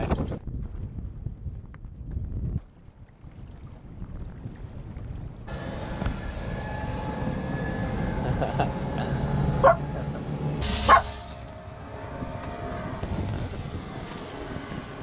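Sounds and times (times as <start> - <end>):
boat engine humming: 5.4 - 15.0
dog barking: 9.6 - 9.8, 10.9 - 11.1.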